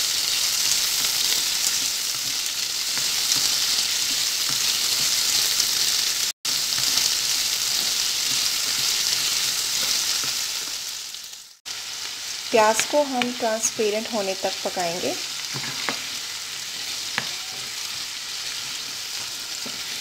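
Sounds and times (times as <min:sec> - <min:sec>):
onions sizzling in hot oil: 0:00.0 - 0:20.0
spatula stirring in a pan: 0:00.2 - 0:05.9, 0:06.5 - 0:10.8, 0:15.4 - 0:20.0.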